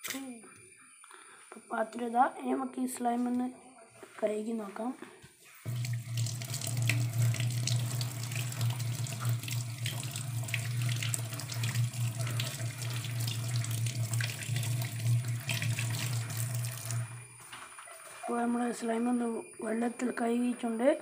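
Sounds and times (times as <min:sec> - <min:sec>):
small splashes and drips: 0:05.6 - 0:17.2
tap water running into sink: 0:05.7 - 0:17.2.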